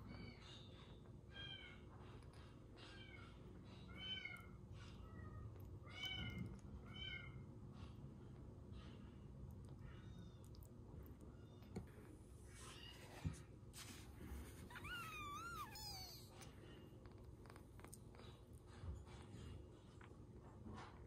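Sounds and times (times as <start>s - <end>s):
kitten mewing: 14.6s - 16.5s.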